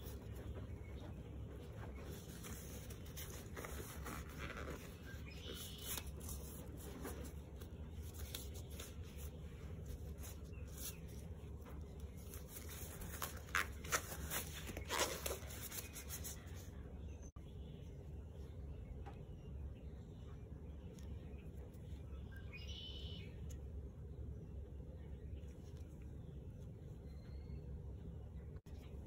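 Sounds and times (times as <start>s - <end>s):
disposable gloves crinkling: 1.6s - 16.6s.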